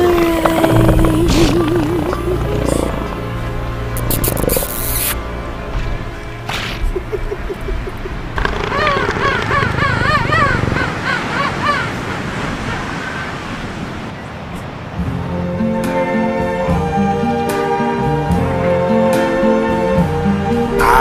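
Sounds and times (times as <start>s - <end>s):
elephant seals calling: 0.0s - 5.2s, 6.5s - 13.0s.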